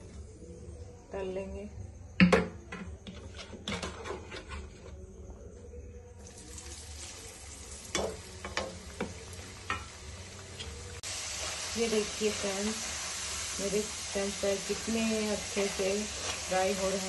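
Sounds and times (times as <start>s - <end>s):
hot oil sizzling: 6.2s - 17.0s.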